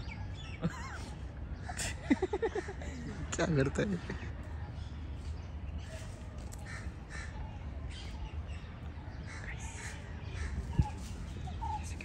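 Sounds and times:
crows cawing: 6.5 - 7.4, 9.2 - 11.0.

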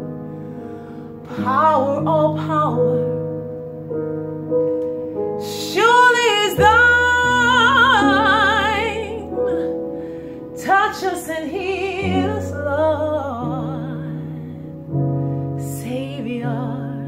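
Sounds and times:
piano chords: 0.0 - 17.0
woman singing soprano: 1.2 - 3.3, 5.4 - 9.8, 10.5 - 14.8, 15.6 - 17.0.

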